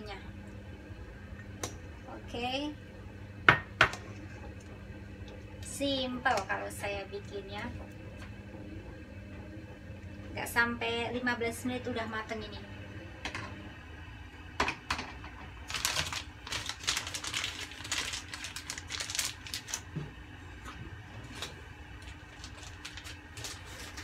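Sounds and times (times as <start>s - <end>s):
gas burner humming: 0.0s - 24.0s.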